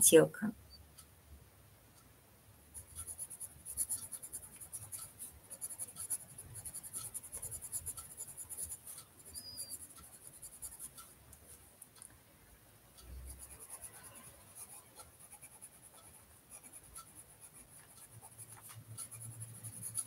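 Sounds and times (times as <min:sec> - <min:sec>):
pencil scratching on paper: 0:02.8 - 0:11.6, 0:13.3 - 0:20.0.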